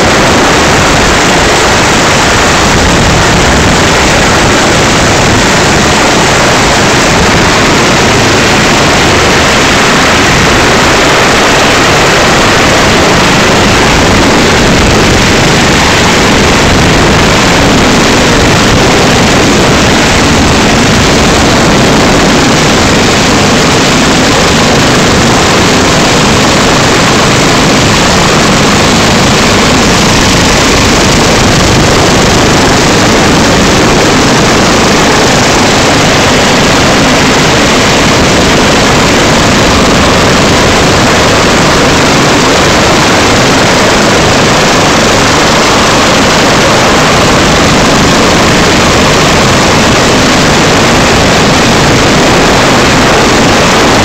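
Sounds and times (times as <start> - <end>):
helicopter rotor and engines: 0.0 - 54.0.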